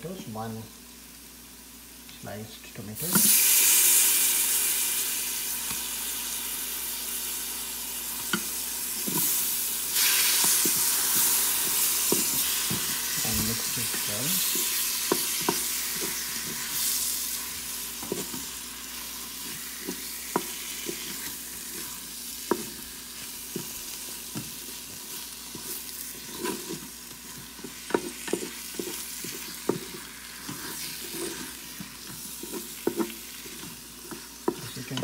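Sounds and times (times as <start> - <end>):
onions sizzling in oil: 0.1 - 35.0
spatula scraping a pot: 10.0 - 35.0.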